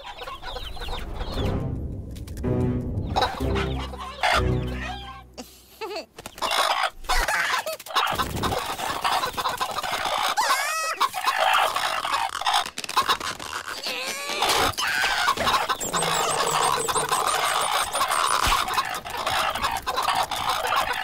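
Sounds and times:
cartoon hens clucking: 3.3 - 12.4, 13.0 - 21.0
warbling squeal: 15.4 - 18.5
deeper pitched voice: 15.8 - 17.6.

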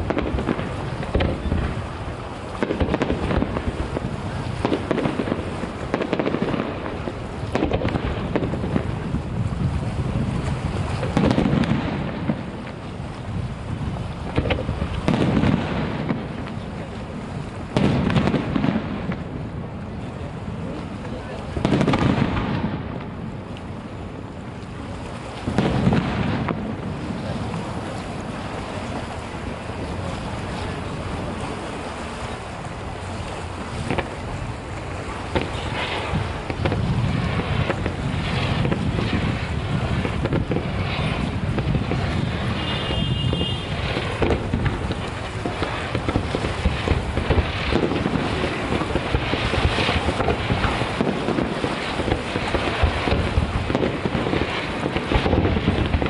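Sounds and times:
distant firework booms: 0.0 - 23.5, 25.3 - 31.5, 33.5 - 56.0
firework crackling: 0.0 - 56.0
rumble of detonations: 0.0 - 56.0.

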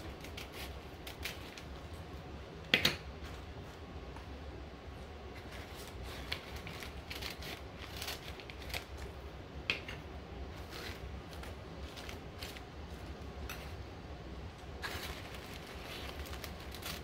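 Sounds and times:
scissors snipping paper: 0.0 - 1.7, 5.4 - 9.1
paper rustling: 5.4 - 9.2, 10.6 - 13.8, 14.8 - 17.0.

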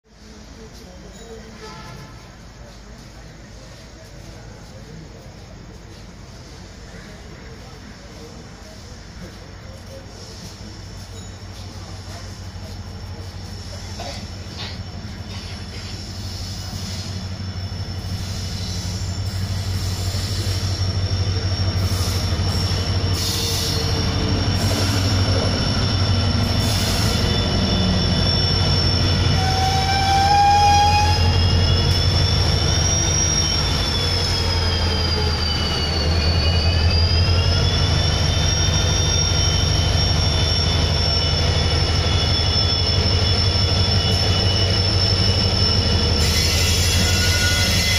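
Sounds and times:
diesel locomotive engine drone: 0.1 - 47.9
wheel squeal: 9.1 - 47.9.

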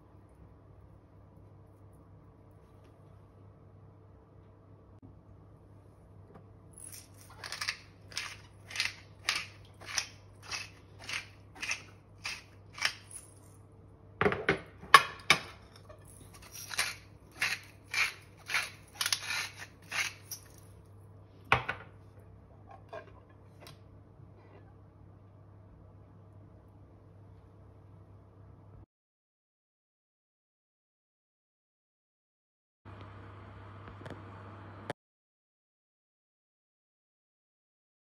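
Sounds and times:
pepper mill grinding: 6.8 - 13.6, 15.8 - 20.7.

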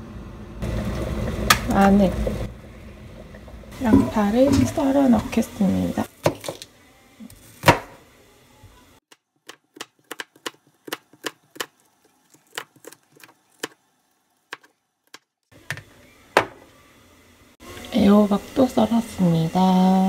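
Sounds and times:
knife chopping on cutting board: 9.5 - 11.7.

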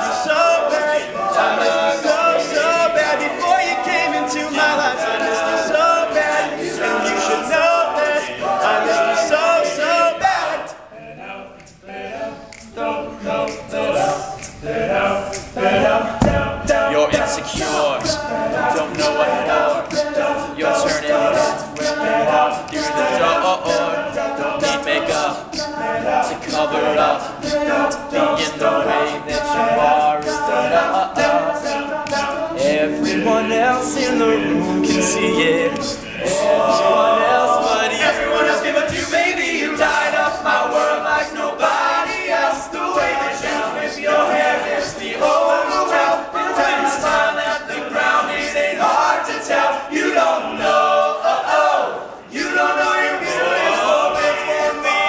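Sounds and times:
men singing a cappella: 0.0 - 55.0.

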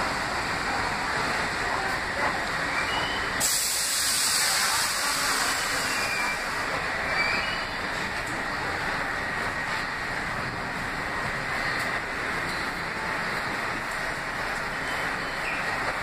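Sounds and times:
subway train pulling in: 0.0 - 16.0
loud air hiss: 3.2 - 6.7.

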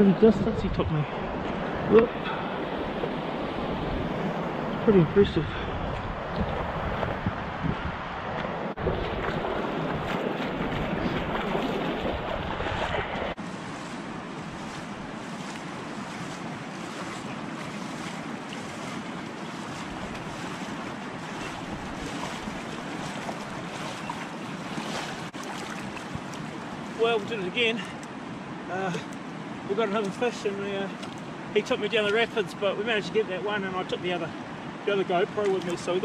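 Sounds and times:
wind rumble on microphone: 0.1 - 27.0
river rushing over stones: 13.4 - 36.0.

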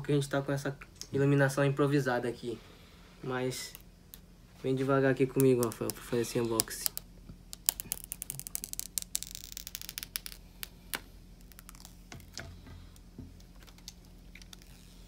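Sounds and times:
plastic film peeling crackle: 5.4 - 12.4, 13.4 - 15.0.

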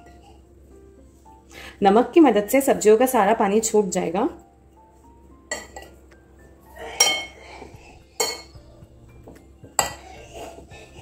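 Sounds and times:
metal spoon clinking on ceramic bowl: 5.5 - 6.0, 7.0 - 7.3, 8.2 - 8.6.

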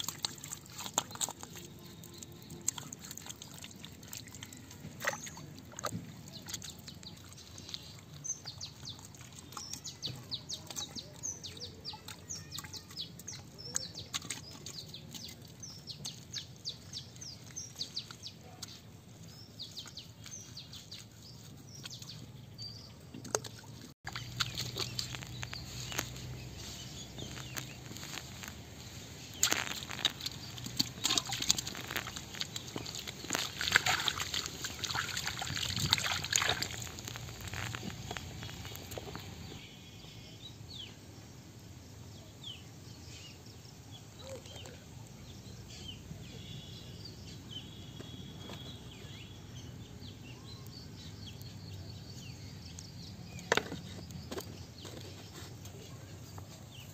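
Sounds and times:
hands splashing in muddy water: 0.0 - 11.3, 23.2 - 39.4
small birds chirping: 0.0 - 56.9.

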